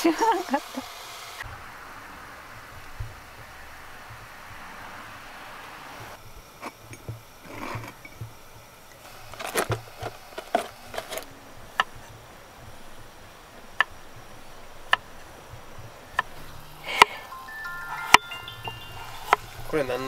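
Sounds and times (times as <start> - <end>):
small objects clattering: 6.6 - 11.3.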